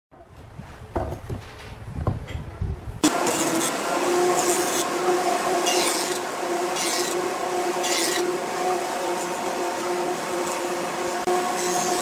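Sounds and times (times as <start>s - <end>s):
hissing wood cuts: 3.0s - 12.0s
jointer motor hum: 3.0s - 12.0s.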